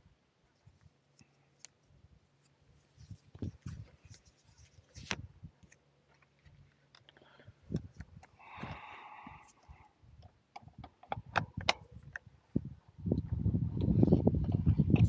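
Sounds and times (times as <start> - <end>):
scattered clicks and knocks: 10.6 - 12.3.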